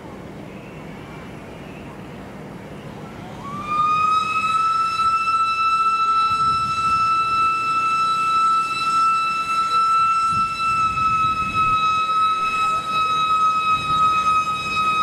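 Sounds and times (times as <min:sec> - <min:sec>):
steam locomotive whistle: 0:03.4 - 0:15.0.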